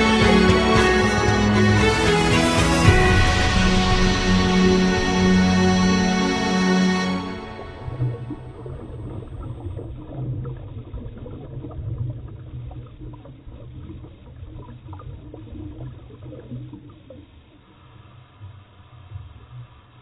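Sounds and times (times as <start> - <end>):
low underwater rumble: 2.8 - 20.0
gurgling bubbles: 7.6 - 17.6.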